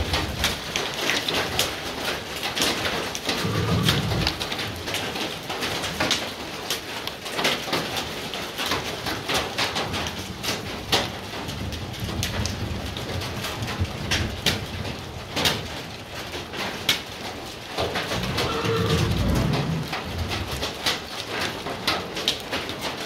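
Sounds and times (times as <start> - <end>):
raindrops ticking close by: 0.0 - 23.0
rain hissing: 2.9 - 5.9, 17.2 - 22.0.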